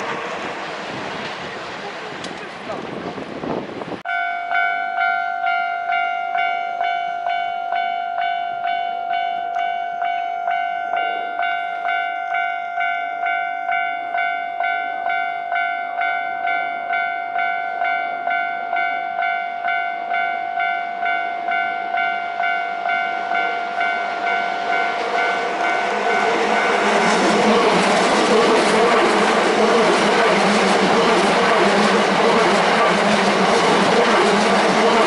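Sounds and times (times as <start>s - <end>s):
electric train rumble: 0.0s - 4.1s, 5.0s - 35.0s
level crossing bell ringing: 4.1s - 27.1s.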